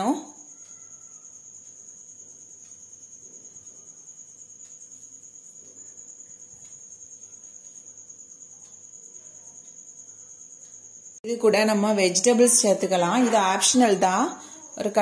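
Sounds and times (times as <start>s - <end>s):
crickets trilling: 0.0s - 15.0s
faint ticks: 0.3s - 11.2s.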